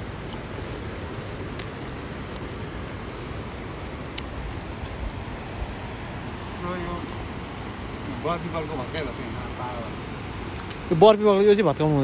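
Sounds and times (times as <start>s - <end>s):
river rushing: 0.0s - 12.0s
light clicks: 1.5s - 3.0s.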